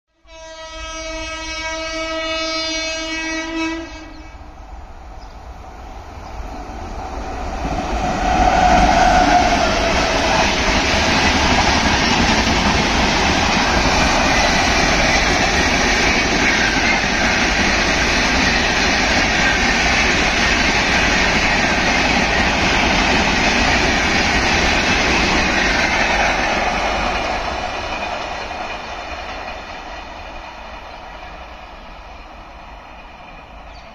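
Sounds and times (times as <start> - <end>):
locomotive horn blast: 0.2 - 4.5
train rushing past with wheel clatter: 0.3 - 33.9.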